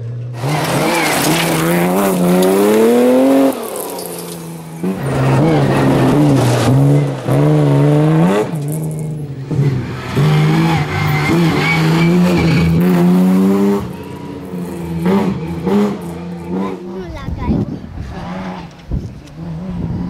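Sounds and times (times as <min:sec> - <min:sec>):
rally car engine accelerating: 0:00.0 - 0:17.0, 0:17.8 - 0:20.0.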